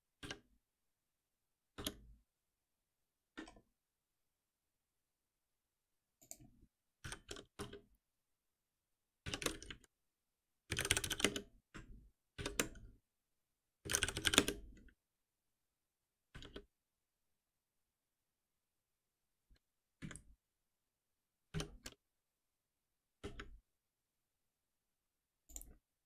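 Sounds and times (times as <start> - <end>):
computer keyboard typing: 9.2 - 9.9, 10.7 - 11.5, 13.8 - 14.8.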